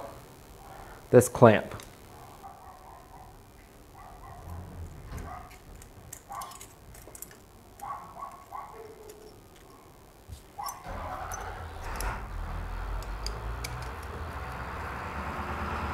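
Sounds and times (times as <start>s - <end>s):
nut driver clicking: 12.9s - 14.9s.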